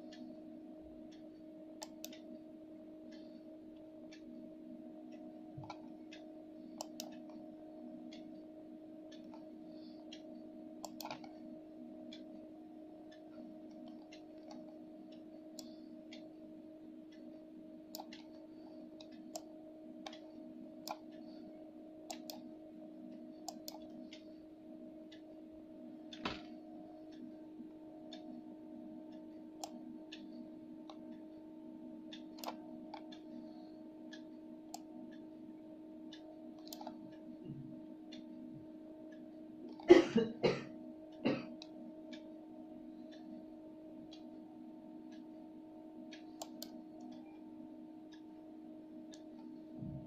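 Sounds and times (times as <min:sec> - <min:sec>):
steady low hum: 0:00.0 - 0:50.0
computer mouse clicks: 0:01.8 - 0:02.3, 0:05.6 - 0:07.4, 0:09.1 - 0:11.4, 0:13.7 - 0:16.2, 0:17.9 - 0:21.4, 0:22.1 - 0:22.5, 0:23.4 - 0:24.3, 0:29.6 - 0:31.2, 0:32.1 - 0:34.9, 0:36.1 - 0:37.1, 0:39.7 - 0:39.9, 0:46.1 - 0:47.4.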